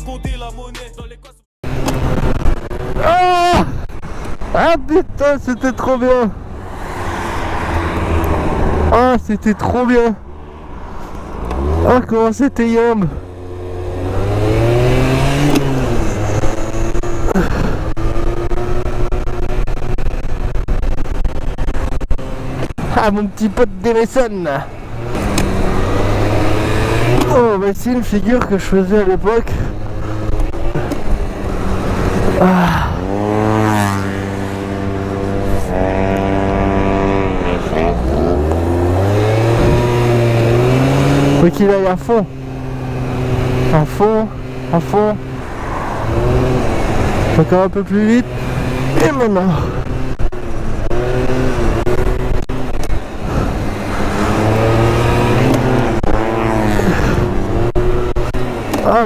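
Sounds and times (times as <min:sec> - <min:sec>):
scooter engine revving: 0:10.2 - 0:12.1, 0:12.9 - 0:22.8, 0:24.7 - 0:27.7, 0:29.3 - 0:59.0
wind rushing over microphone: 0:29.6 - 0:41.4.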